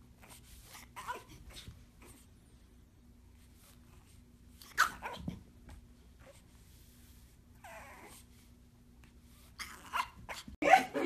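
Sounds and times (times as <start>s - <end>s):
puppy barking and yipping: 0.8s - 1.7s, 4.6s - 5.4s, 9.6s - 11.0s.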